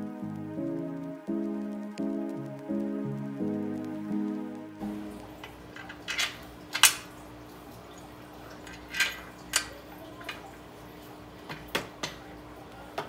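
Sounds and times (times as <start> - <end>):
metal bolts and tools clinking: 5.8 - 7.1, 8.6 - 9.8.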